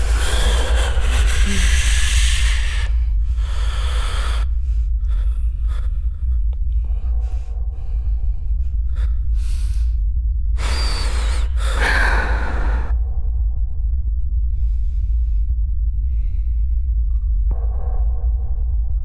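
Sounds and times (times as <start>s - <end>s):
person gasping breaths: 0.0s - 13.1s
steady low rumble: 0.0s - 19.0s.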